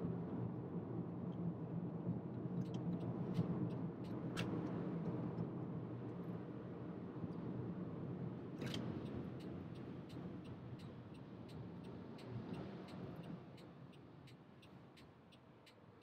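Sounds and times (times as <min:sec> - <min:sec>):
turn signal ticking: 0:09.0 - 0:16.0.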